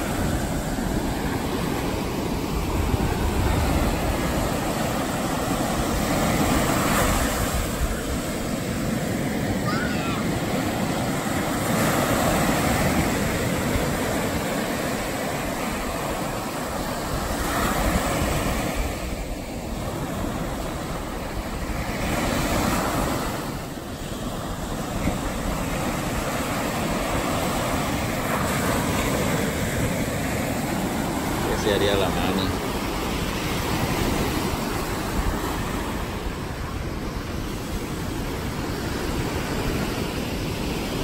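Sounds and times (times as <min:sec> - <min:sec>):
ocean surf breaking on beach: 0:00.0 - 0:41.0.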